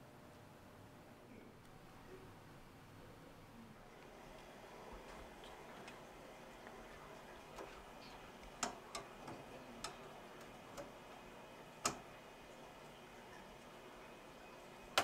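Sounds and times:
faint room hiss: 0.0s - 15.0s
small clicks and taps: 8.4s - 11.0s, 11.8s - 12.1s.

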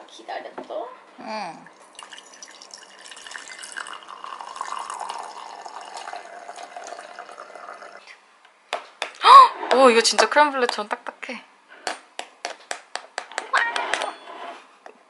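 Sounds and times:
coffee pouring into mug: 1.7s - 8.1s.

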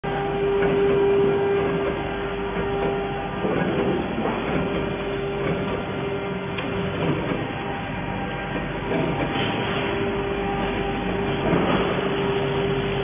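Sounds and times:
machinery humming with a whine: 0.0s - 13.0s
workshop noise: 0.0s - 13.0s.

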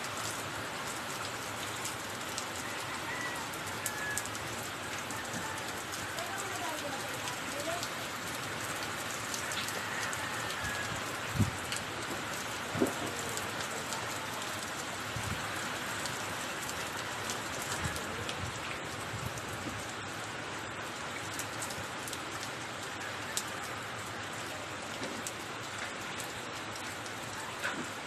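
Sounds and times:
heavy rain hissing: 0.0s - 20.8s.

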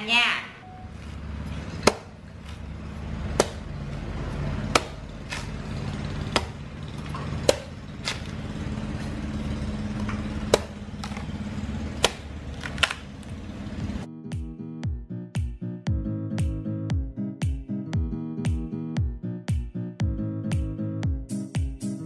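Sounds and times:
knife chopping coconut husk: 1.0s - 9.2s, 9.9s - 13.0s.

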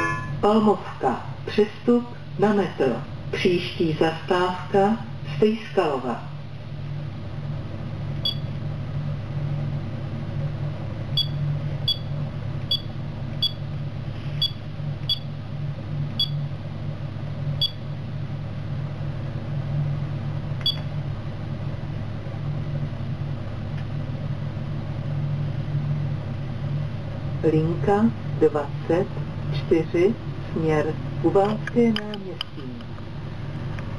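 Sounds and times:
short high key beeps: 8.2s - 8.5s, 11.2s - 12.1s, 12.7s - 13.6s, 14.4s - 15.3s, 16.2s - 16.4s, 17.6s - 17.8s, 20.6s - 20.9s.

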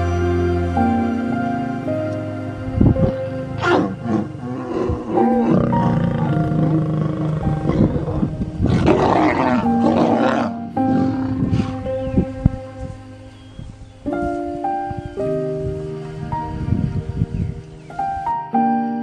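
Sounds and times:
background music held notes: 0.0s - 19.0s
lions snarling and growling: 3.5s - 12.0s.

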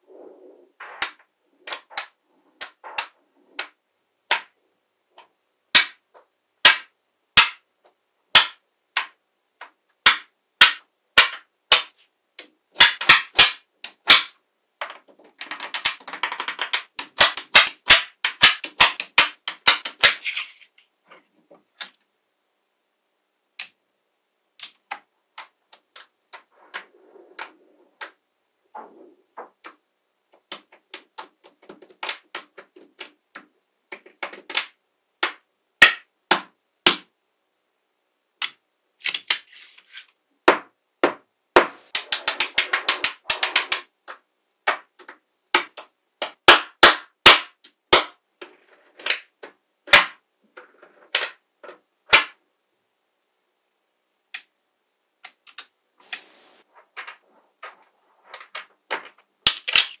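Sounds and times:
magnetic balls clicking together: 0.9s - 4.5s, 8.3s - 20.9s, 23.6s - 23.8s, 24.6s - 28.2s, 29.4s - 37.1s, 41.7s - 52.4s, 55.2s - 60.0s.

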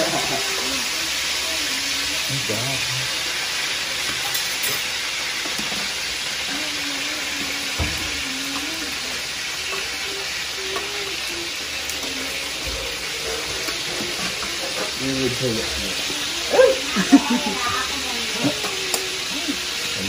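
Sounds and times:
chicken sizzling in hot oil: 0.0s - 20.0s.

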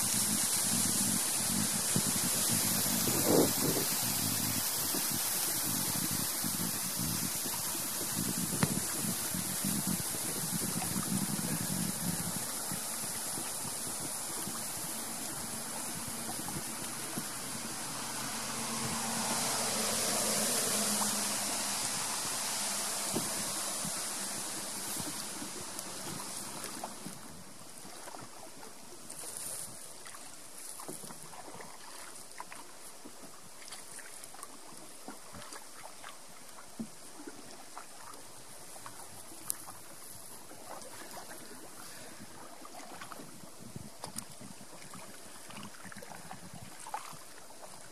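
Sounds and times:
water washing along canoe hull: 0.0s - 47.9s.

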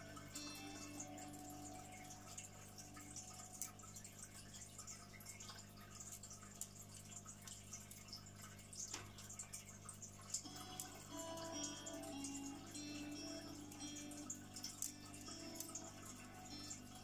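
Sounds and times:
music: 0.0s - 3.9s, 10.4s - 17.0s.

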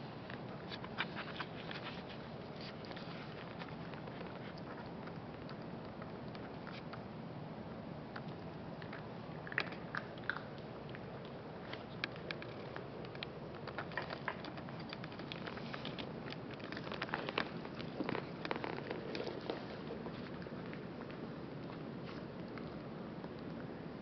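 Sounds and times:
dog crunching and chewing food: 0.4s - 7.1s, 8.1s - 23.9s.

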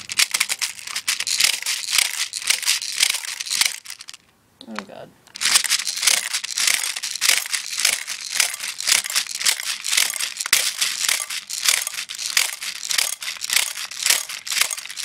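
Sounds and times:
speed loader rattling strokes: 0.0s - 4.1s, 5.4s - 15.0s.

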